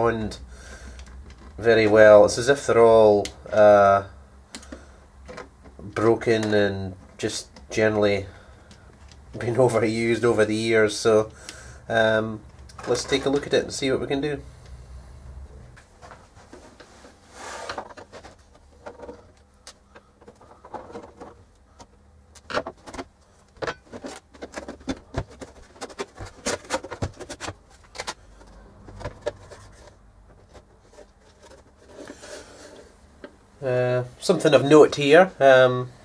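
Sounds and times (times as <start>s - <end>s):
case rubbing: 16.4s - 33.0s.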